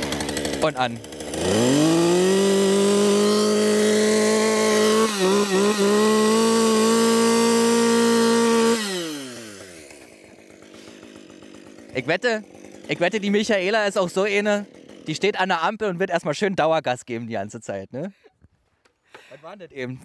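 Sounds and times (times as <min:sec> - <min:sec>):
chainsaw revving: 0:00.0 - 0:15.8.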